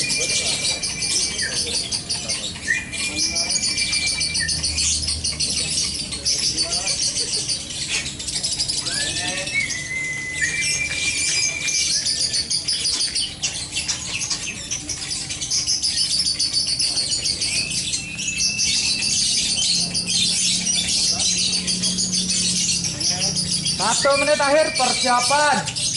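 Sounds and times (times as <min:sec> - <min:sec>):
songbirds chirping: 0:00.0 - 0:25.9
short whistled bird notes: 0:08.8 - 0:12.5.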